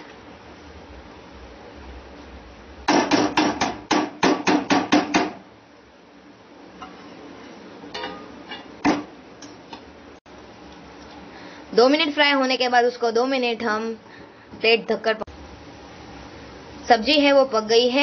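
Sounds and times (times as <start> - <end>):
steel spoon clanking against a pan: 7.9 - 8.8.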